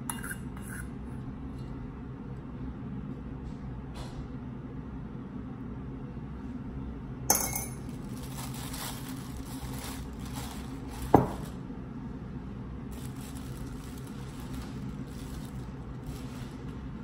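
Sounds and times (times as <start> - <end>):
plastic bag crinkling: 7.8 - 11.6, 12.9 - 16.8.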